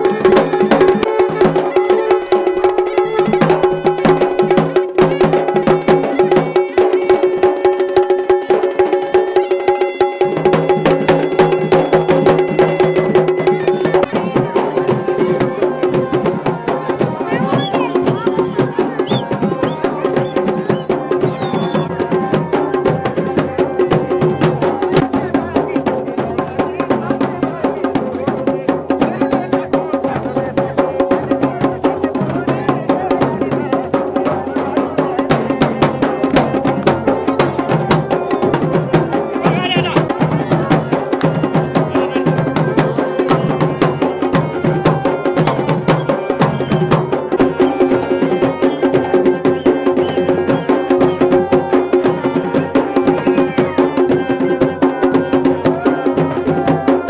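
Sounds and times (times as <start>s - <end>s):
drums beating a rhythm: 0.0s - 57.0s
bagpipe melody with drone: 8.6s - 18.6s.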